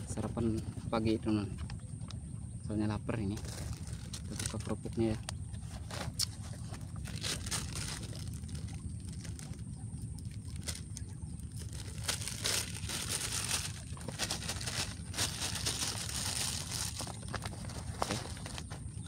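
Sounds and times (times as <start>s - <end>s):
low background rumble: 0.0s - 19.0s
plastic bag crinkling: 3.4s - 18.8s.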